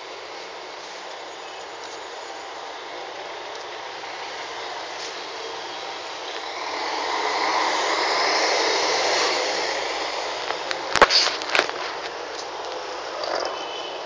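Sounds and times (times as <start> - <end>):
city street traffic: 0.0 - 14.0
vehicle passing close by: 4.8 - 11.4.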